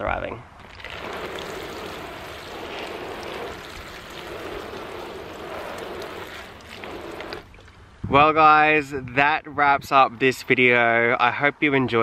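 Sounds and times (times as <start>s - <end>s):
watering can spraying water: 0.6s - 7.6s.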